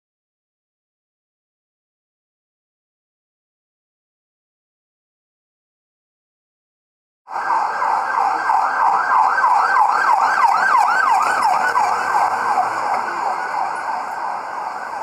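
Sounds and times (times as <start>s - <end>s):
emergency siren yelping: 7.3s - 15.0s.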